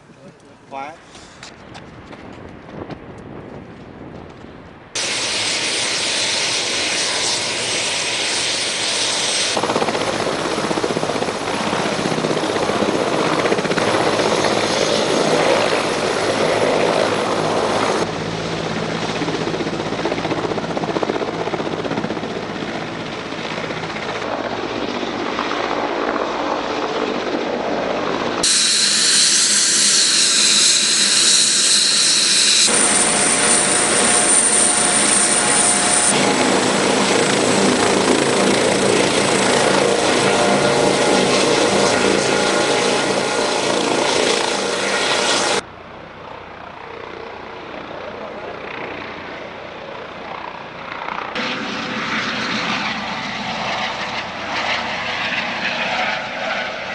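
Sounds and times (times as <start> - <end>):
helicopter rotor and turbines: 0.0 - 56.9
high turbine whine: 5.0 - 24.6, 28.4 - 47.9.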